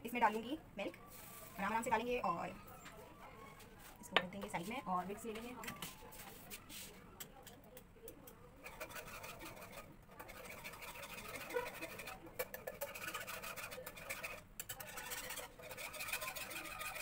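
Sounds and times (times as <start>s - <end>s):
wire whisk scraping a pan: 8.6s - 17.0s.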